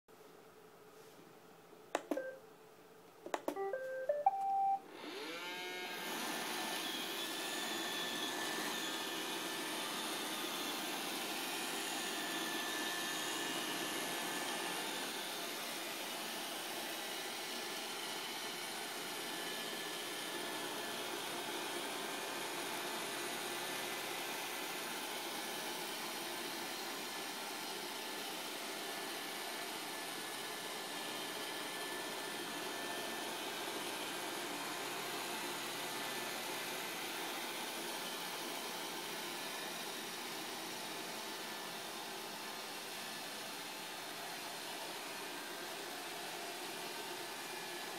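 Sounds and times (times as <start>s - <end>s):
beeped tune: 2.0s - 2.4s, 3.4s - 4.8s
button click: 2.0s - 2.4s, 3.3s - 4.8s
robot vacuum motor running: 4.9s - 18.1s.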